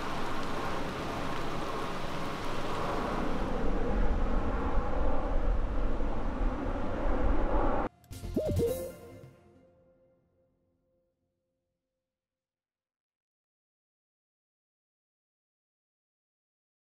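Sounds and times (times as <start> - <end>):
distant traffic: 0.0 - 7.9
strong low rumble: 2.7 - 7.9.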